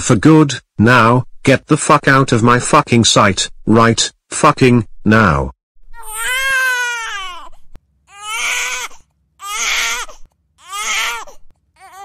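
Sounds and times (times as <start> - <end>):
cartoon boy crying: 5.9 - 7.5.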